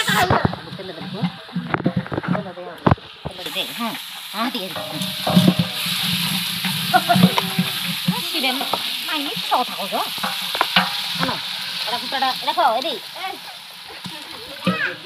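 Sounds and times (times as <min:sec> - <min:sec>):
onions sizzling in a pot: 0:00.0 - 0:15.0
wooden ladle scraping a pot: 0:04.6 - 0:12.6.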